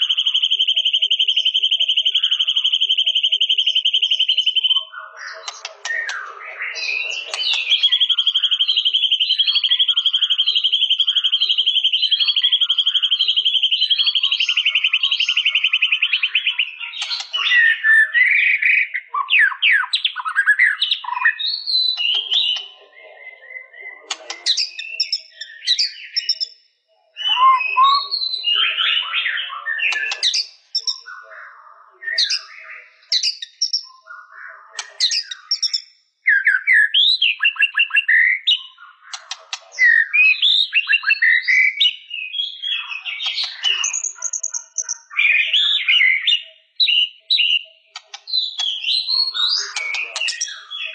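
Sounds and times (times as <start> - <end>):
bird trilling and whistling: 0.0 - 26.5, 27.2 - 31.3, 32.0 - 50.9.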